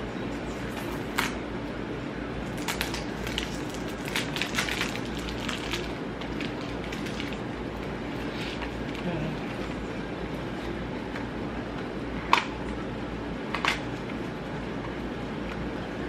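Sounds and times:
low steady hum: 0.0 - 16.0
packaging crinkling: 2.5 - 9.7.

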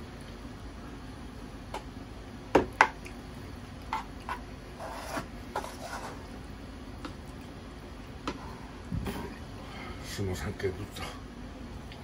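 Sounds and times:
wooden spoon scraping a bowl: 3.9 - 6.3.

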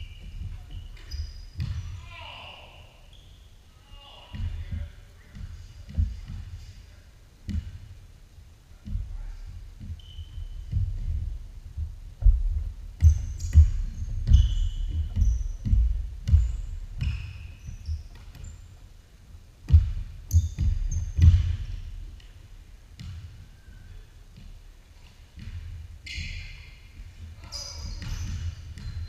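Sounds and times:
basketball bouncing on hardwood: 0.0 - 2.0, 7.5 - 7.9, 8.8 - 18.6, 19.6 - 22.4, 23.0 - 23.4, 25.3 - 26.4, 27.4 - 29.0
sneakers squeaking on hardwood: 0.0 - 2.4, 3.0 - 6.9, 8.9 - 18.9, 19.7 - 22.4, 23.0 - 29.0.

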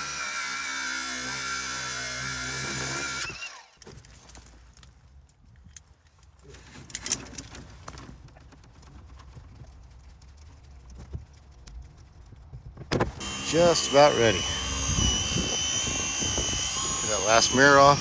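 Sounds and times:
metal parts clicking and clinking: 3.8 - 8.0.

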